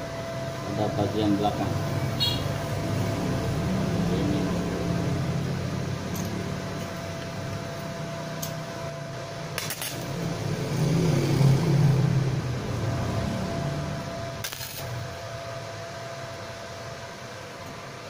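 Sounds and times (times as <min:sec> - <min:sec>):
welder humming: 0:00.0 - 0:18.0
welding arc bursts: 0:09.5 - 0:10.7, 0:14.4 - 0:15.2.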